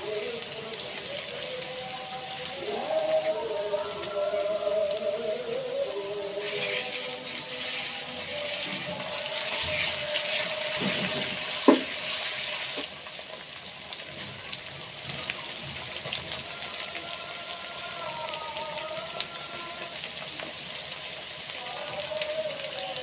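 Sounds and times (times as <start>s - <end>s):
hot oil sizzling in a pan: 0.0s - 23.0s
spatula stirring paste: 6.4s - 12.3s.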